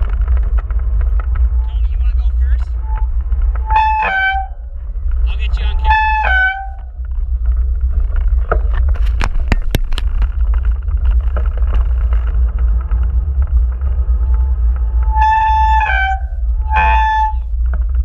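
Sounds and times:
bike tyres rolling on pavement: 0.0 - 18.0
descending tone: 0.0 - 18.0
wind on microphone: 0.0 - 18.0
bike rattling knocks: 8.0 - 12.5.

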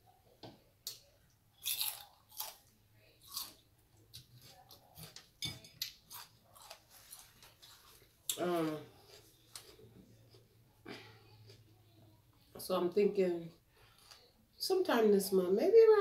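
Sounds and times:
celery crunching: 1.6 - 10.4.

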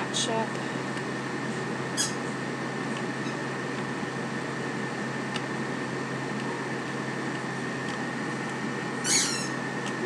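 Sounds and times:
mechanical hum: 0.0 - 10.0
thin high whine: 8.8 - 9.8.

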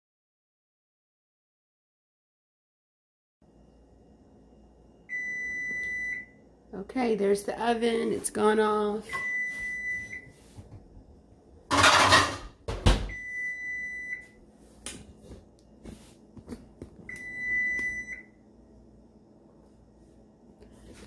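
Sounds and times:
oven timer beeping: 4.9 - 6.4, 9.1 - 10.3, 13.1 - 14.4, 17.1 - 18.4.

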